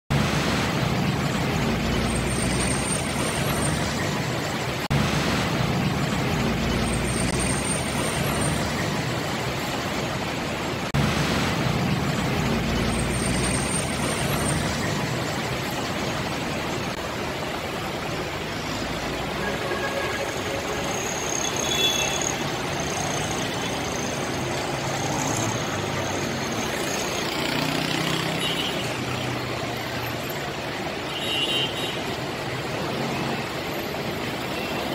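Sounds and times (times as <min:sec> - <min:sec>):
highway traffic: 0:00.1 - 0:34.9
high-pitched squeals: 0:18.7 - 0:24.4.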